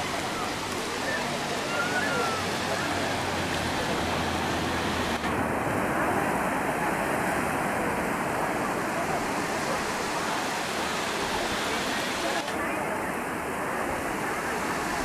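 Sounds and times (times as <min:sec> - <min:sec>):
small waves breaking on sand: 0:00.0 - 0:15.0.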